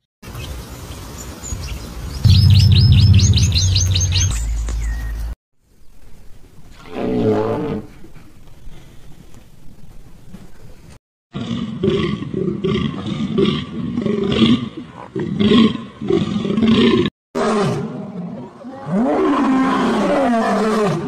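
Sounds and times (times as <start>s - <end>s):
large animal roaring: 11.4s - 21.0s.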